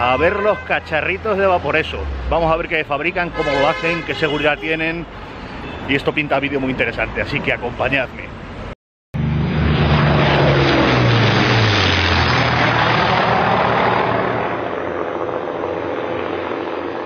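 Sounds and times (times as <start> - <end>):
propeller airplane flying by: 9.2 - 17.0.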